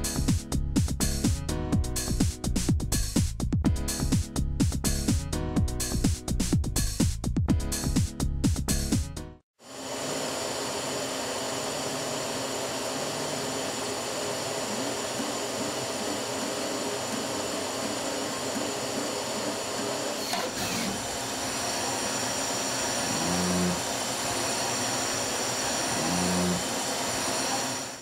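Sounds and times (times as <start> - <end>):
machine hum and hiss: 9.6 - 28.0
short rising and falling whines: 9.6 - 28.0.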